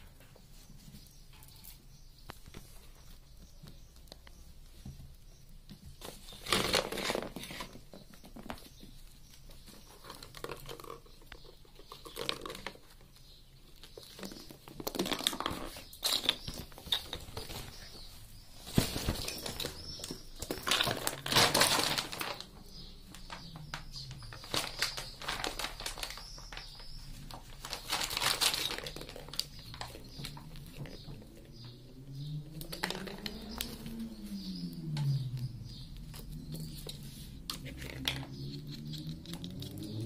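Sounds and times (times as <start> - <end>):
fabric tunnel rustling and crinkling: 17.2 - 31.1.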